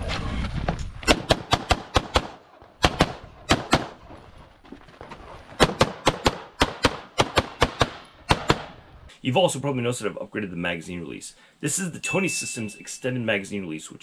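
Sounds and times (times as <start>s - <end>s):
rapid pistol shots: 1.1s - 4.0s, 5.6s - 8.8s.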